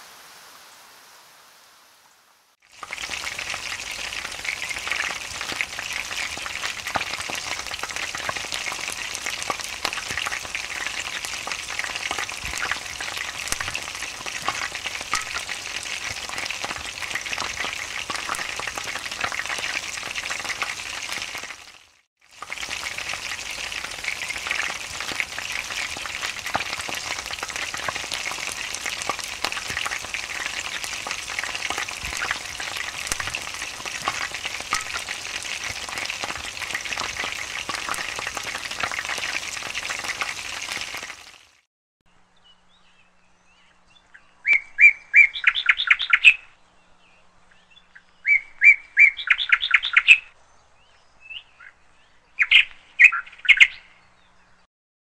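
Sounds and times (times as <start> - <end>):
chicken frying in a pan: 2.6 - 41.7
bird chirping: 42.3 - 54.7.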